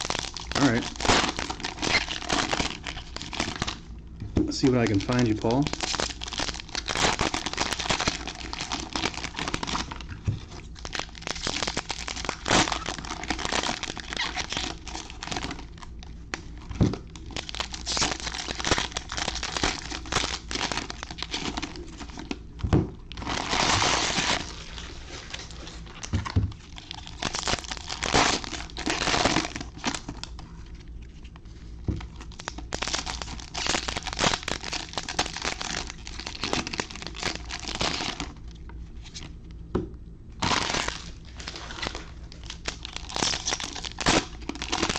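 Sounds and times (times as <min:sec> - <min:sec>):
wrappers crinkling and tearing: 0:00.0 - 0:03.9, 0:04.5 - 0:22.4, 0:23.1 - 0:39.4, 0:40.4 - 0:44.9.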